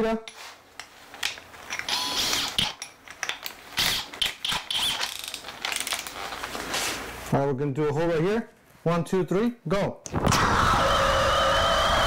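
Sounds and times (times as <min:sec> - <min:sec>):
drill chuck ratcheting: 0:01.7 - 0:06.2.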